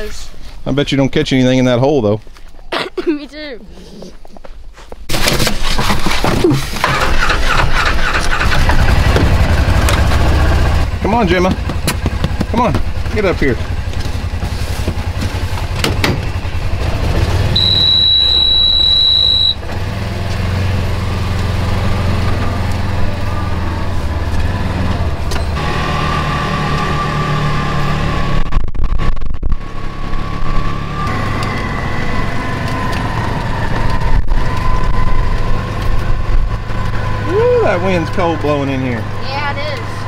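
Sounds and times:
vehicle engine running: 0:06.8 - 0:40.0
steady high beep: 0:17.6 - 0:19.6.

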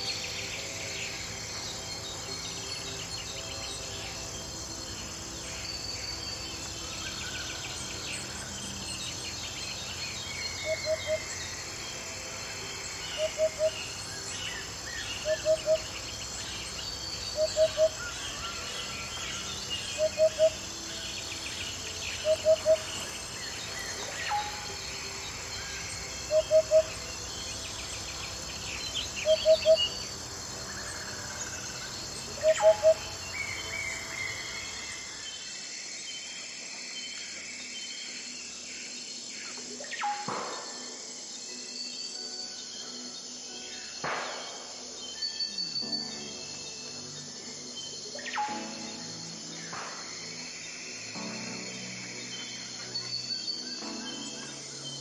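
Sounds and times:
insects chorus: 0:00.0 - 0:55.0
bird calls: 0:10.2 - 0:11.7, 0:21.7 - 0:35.0.

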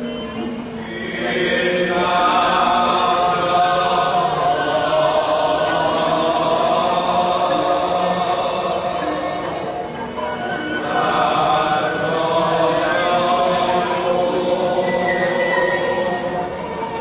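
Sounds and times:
group of voices chanting: 0:10.7 - 0:16.6.

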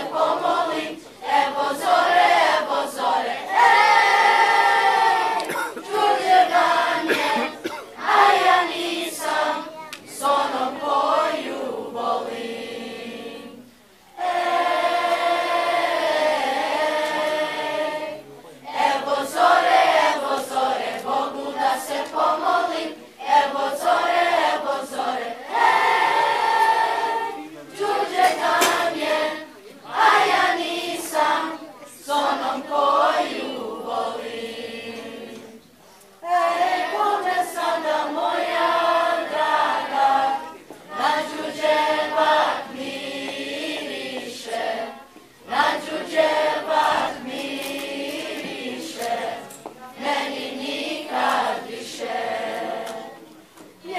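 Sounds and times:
children's choir singing: 0:00.0 - 0:53.9.

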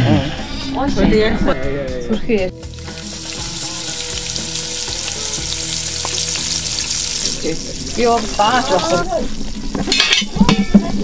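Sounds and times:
stew sizzling in a pot: 0:02.6 - 0:11.0.

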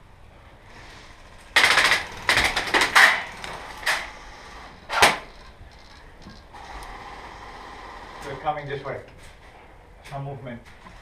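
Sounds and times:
airsoft gun burst: 0:01.6 - 0:04.1.

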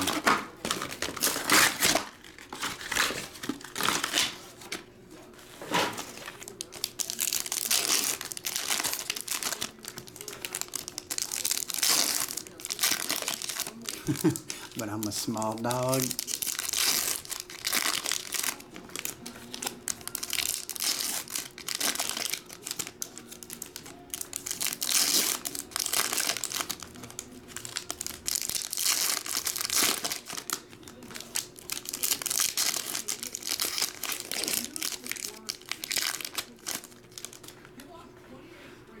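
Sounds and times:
foil wrappers crinkling and tearing: 0:00.0 - 0:37.9.

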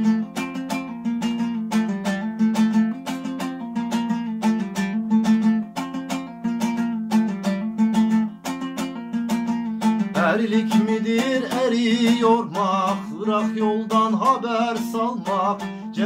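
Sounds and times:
dombra strummed: 0:00.0 - 0:16.0.

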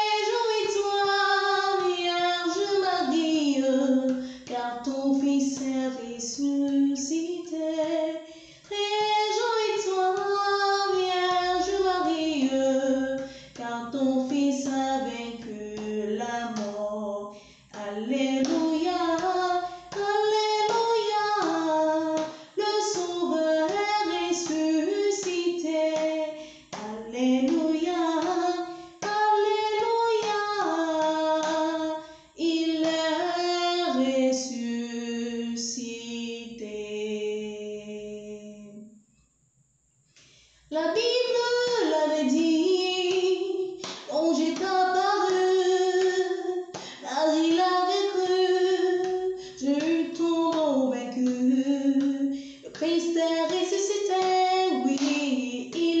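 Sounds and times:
woman singing a hymn: 0:00.0 - 0:38.8, 0:40.7 - 0:56.0.

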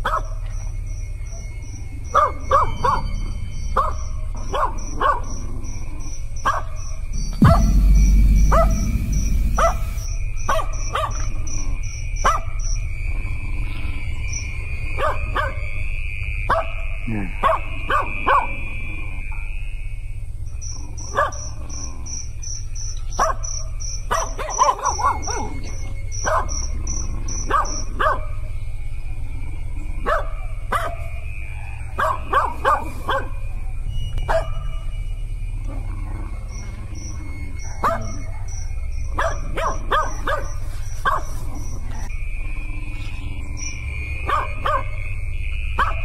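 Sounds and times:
dog barking: 0:00.0 - 0:00.5, 0:02.1 - 0:03.2, 0:03.8 - 0:05.5, 0:06.4 - 0:07.7, 0:10.5 - 0:11.3, 0:12.2 - 0:12.6, 0:14.9 - 0:15.7, 0:16.5 - 0:18.6, 0:21.1 - 0:21.5, 0:23.1 - 0:26.7, 0:27.4 - 0:28.4, 0:30.0 - 0:31.2, 0:31.9 - 0:33.6, 0:34.3 - 0:34.9, 0:37.7 - 0:38.6, 0:39.2 - 0:42.1, 0:44.2 - 0:45.0, 0:45.8 - 0:46.0
high pulsing chirp: 0:00.4 - 0:46.0
steady low rumble: 0:03.3 - 0:10.4.

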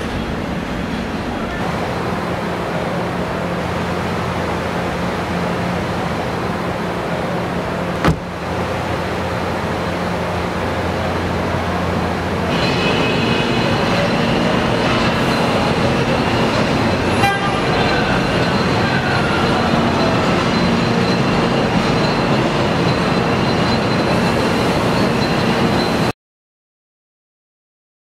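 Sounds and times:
machinery hum and hiss: 0:00.0 - 0:26.1
high machine whining tones: 0:12.5 - 0:26.1.

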